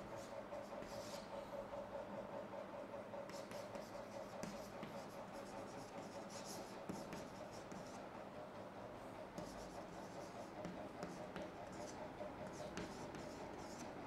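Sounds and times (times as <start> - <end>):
steady background hum: 0.0 - 14.0
chalk scratching on chalkboard: 0.2 - 1.4, 3.3 - 8.1, 9.4 - 14.0.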